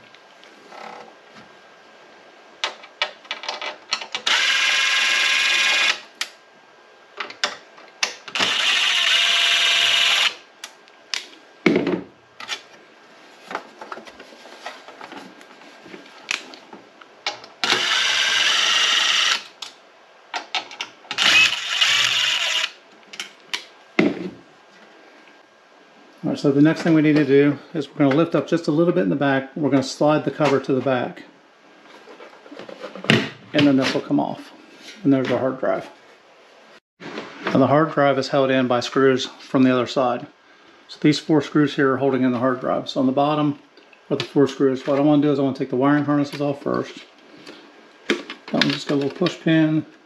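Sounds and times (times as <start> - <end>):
impact driver running: 21.2 - 22.8.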